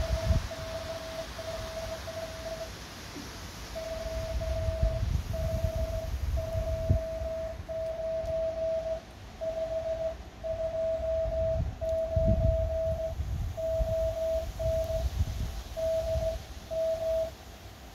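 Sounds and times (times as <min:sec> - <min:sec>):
morse code tone: 0:00.0 - 0:02.7, 0:03.7 - 0:15.1, 0:15.7 - 0:17.4
low rumble: 0:03.8 - 0:15.1.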